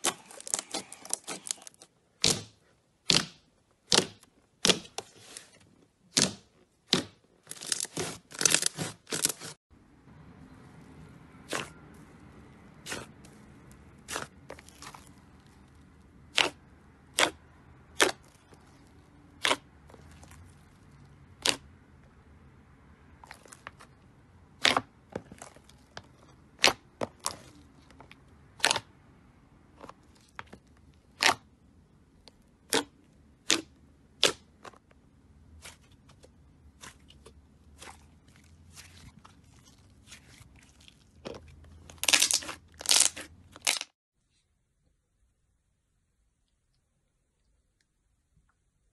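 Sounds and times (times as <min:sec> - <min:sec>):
slime popping and crackling: 0:39.7 - 0:43.9.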